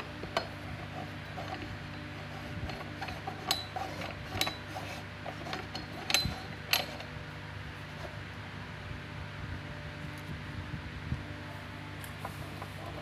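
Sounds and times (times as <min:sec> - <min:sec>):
steady low hum: 0:00.0 - 0:13.0
metal pipe fittings clicking: 0:01.4 - 0:07.1.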